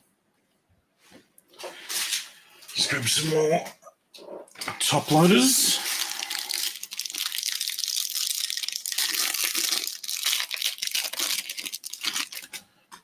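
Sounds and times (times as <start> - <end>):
wrapper tearing and crinkling: 5.8 - 12.6
cards rustling: 8.9 - 12.6.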